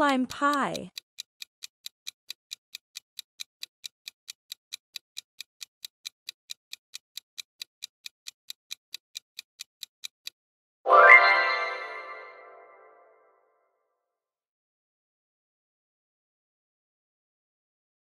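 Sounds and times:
clock ticking: 0:00.0 - 0:10.4.

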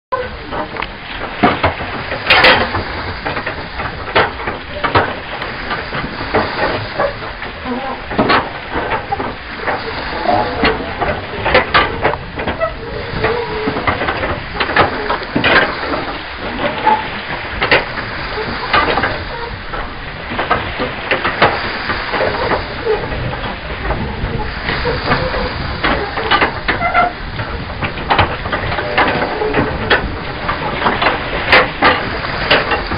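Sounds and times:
seawater lapping against pier: 0:00.1 - 0:32.9.

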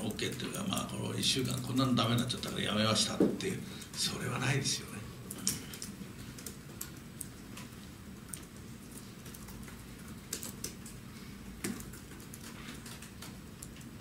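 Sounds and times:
low room hum: 0:00.0 - 0:14.0
laptop keyboard typing: 0:05.3 - 0:14.0.

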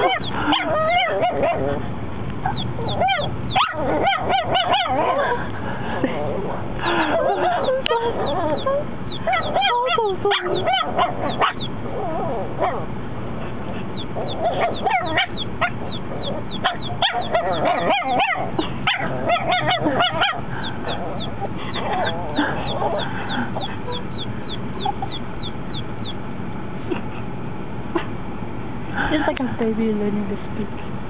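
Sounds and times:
puppy yipping and barking: 0:00.0 - 0:01.8, 0:02.4 - 0:05.4, 0:07.0 - 0:12.9, 0:14.0 - 0:25.9.

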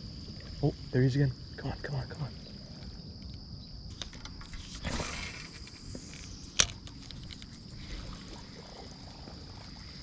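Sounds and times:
insect trill: 0:00.0 - 0:10.0.

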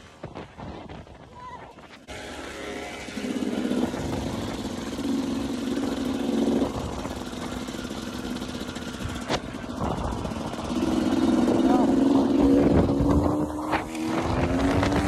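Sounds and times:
wind rush over microphone: 0:00.0 - 0:02.1, 0:03.5 - 0:07.7, 0:08.9 - 0:15.0
dirt bike engine under throttle: 0:01.8 - 0:15.0.

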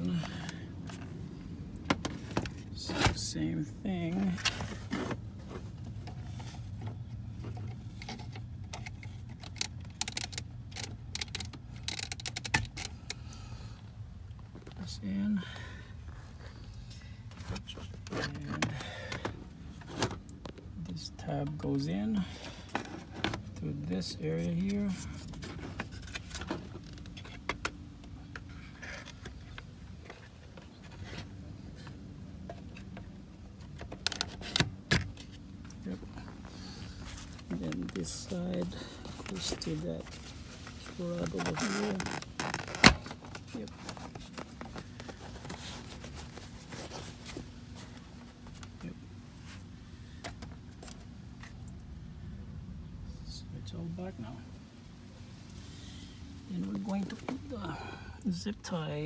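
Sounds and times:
steady low hum: 0:00.0 - 0:59.0
plastic parts clicking and rattling: 0:04.4 - 0:13.2.

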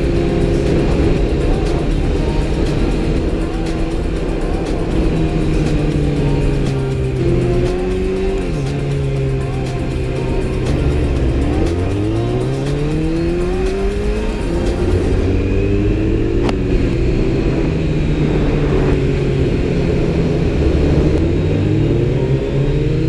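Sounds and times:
motorcycle engine accelerating: 0:00.0 - 0:23.0
wind noise: 0:15.2 - 0:22.5.

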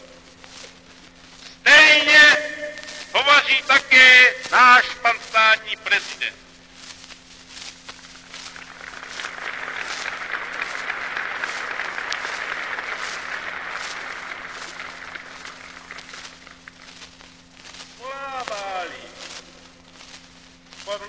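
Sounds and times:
low steady hum: 0:00.0 - 0:21.0
crowd applauding: 0:08.4 - 0:16.9.

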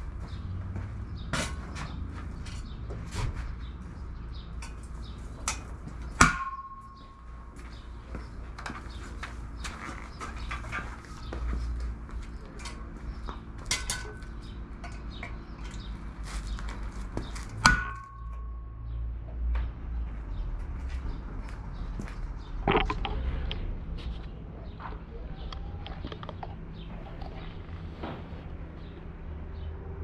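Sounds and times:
sharp metallic clanks: 0:04.6 - 0:07.5, 0:13.6 - 0:16.0, 0:17.4 - 0:18.7
metal tools clinking and knocking: 0:13.6 - 0:16.0.

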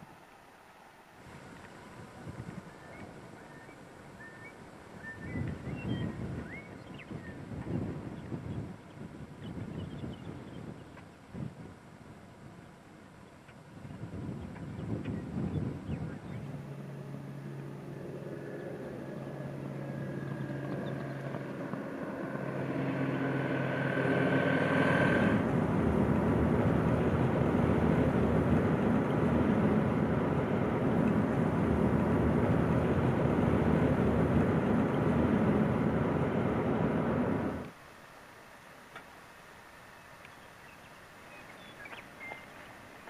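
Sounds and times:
road and wind noise: 0:00.0 - 0:43.0
car engine accelerating: 0:15.8 - 0:37.7.

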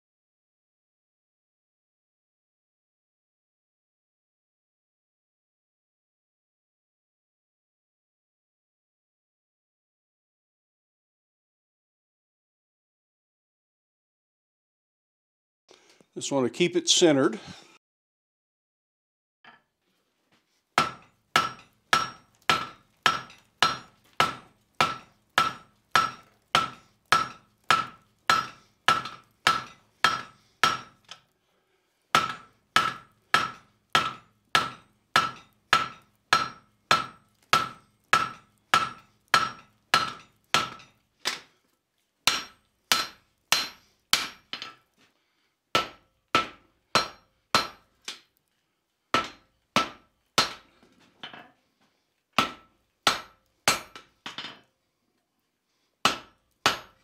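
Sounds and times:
hammer striking metal on anvil: 0:20.8 - 0:31.0, 0:32.2 - 0:41.0, 0:42.3 - 0:44.8, 0:45.8 - 0:47.9, 0:49.2 - 0:50.7, 0:52.4 - 0:54.6, 0:56.0 - 0:57.0.

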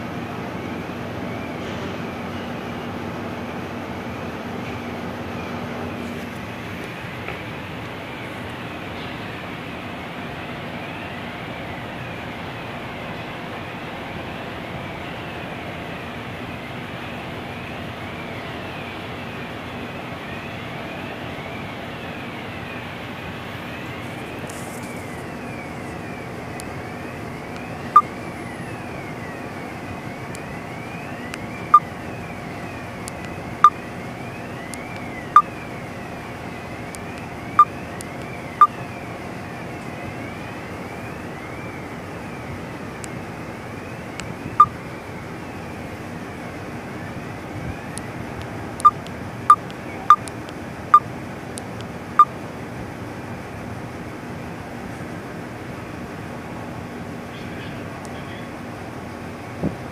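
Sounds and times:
faint wavering whine: 0:00.0 - 0:51.1
ship machinery drone: 0:00.0 - 0:59.9
short sharp beeps: 0:48.8 - 0:50.3.

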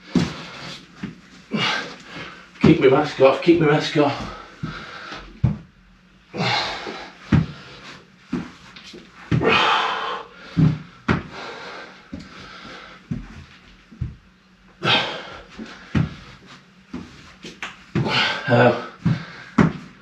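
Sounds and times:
man panting: 0:01.5 - 0:02.5, 0:04.0 - 0:05.4, 0:06.3 - 0:08.0, 0:09.3 - 0:13.3, 0:14.8 - 0:17.1, 0:18.0 - 0:20.0.

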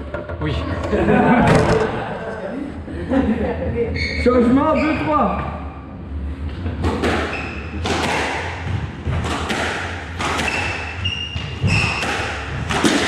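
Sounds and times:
squash ball hitting rackets and walls: 0:06.7 - 0:13.0
shoes squeaking on wooden floor: 0:10.4 - 0:12.0.

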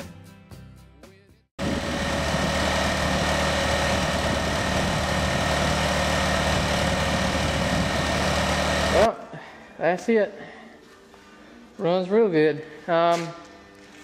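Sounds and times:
tractor engine running: 0:01.6 - 0:09.1.

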